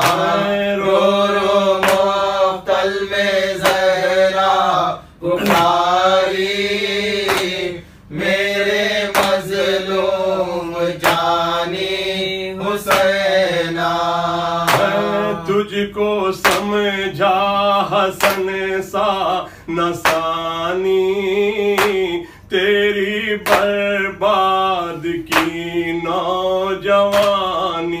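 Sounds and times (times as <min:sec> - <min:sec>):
sharp drum beat: 0:00.0 - 0:02.2, 0:14.7 - 0:15.5
mournful chant singing: 0:00.0 - 0:28.0.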